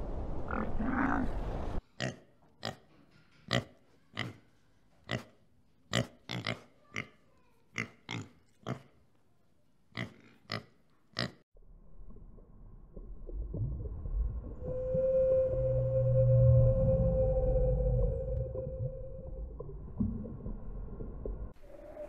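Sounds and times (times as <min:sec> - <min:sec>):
low rumbling noise: 0:11.6 - 0:22.0.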